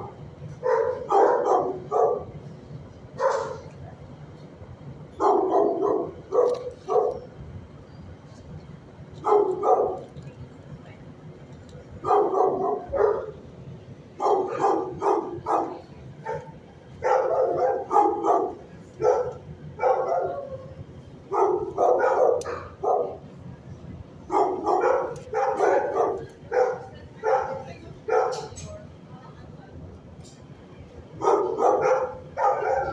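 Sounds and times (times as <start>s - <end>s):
dogs barking: 0.0s - 2.4s, 3.2s - 3.7s, 5.2s - 7.3s, 9.2s - 10.1s, 12.0s - 13.4s, 14.2s - 20.7s, 21.3s - 23.2s, 24.3s - 28.7s, 31.2s - 32.9s.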